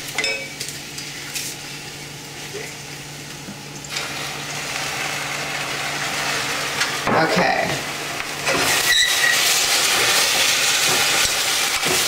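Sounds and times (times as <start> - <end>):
eggplant sizzling in oil: 3.7 - 12.0.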